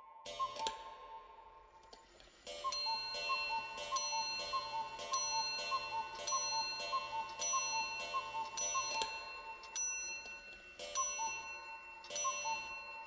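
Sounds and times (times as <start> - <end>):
clock ticking: 2.5 - 13.0
ringing chime tones: 2.6 - 13.0.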